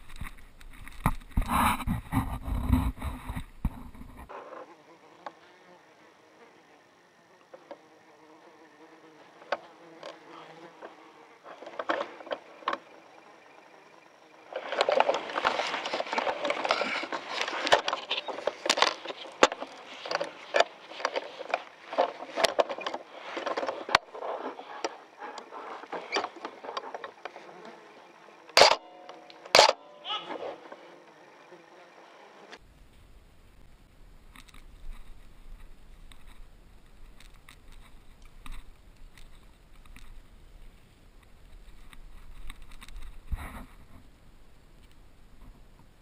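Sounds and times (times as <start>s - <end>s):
rustling and handling noise: 0.0s - 4.7s, 14.4s - 27.8s
faint steady buzz: 0.0s - 46.0s.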